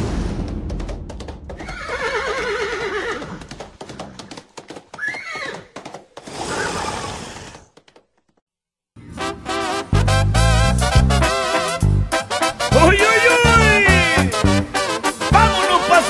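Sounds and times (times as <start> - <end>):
clatter of hoofbeats: 0.7 - 8.4
horse whinnying: 1.6 - 3.4, 5.0 - 7.7.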